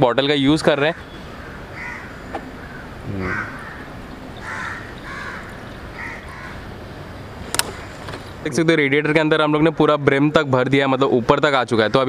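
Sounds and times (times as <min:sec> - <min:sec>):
low background noise: 0:00.0 - 0:12.0
crows cawing: 0:00.8 - 0:06.8, 0:07.5 - 0:08.2.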